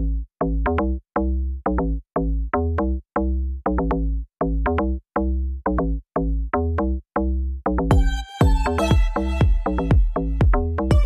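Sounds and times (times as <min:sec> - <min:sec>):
electronic music with steady beat: 0:07.8 - 0:11.0.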